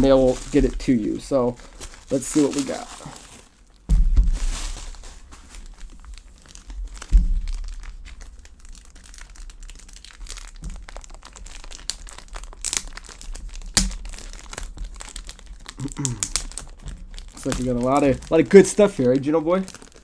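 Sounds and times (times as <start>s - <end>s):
packaging crinkling: 0.0s - 20.0s
dull thump: 3.9s - 4.9s.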